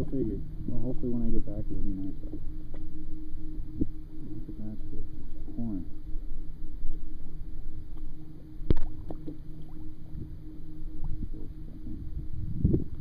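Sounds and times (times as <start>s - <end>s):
steady low hum: 0.0s - 13.0s
water lapping and gurgling: 6.8s - 13.0s.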